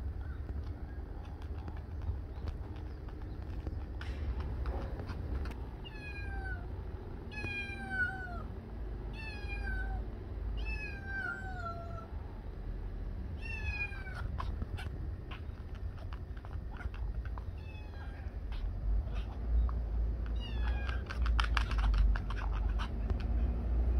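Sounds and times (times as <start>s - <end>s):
light irregular clicks: 0.4s - 5.6s, 19.6s - 23.5s
cat meowing: 5.8s - 6.7s, 7.3s - 8.5s, 9.1s - 12.2s, 13.4s - 23.3s.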